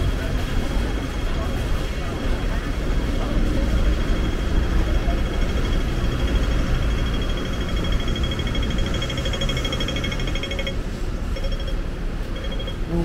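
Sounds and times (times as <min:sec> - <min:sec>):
low traffic rumble: 0:00.0 - 0:13.0
crossing signal beeping: 0:03.6 - 0:13.0.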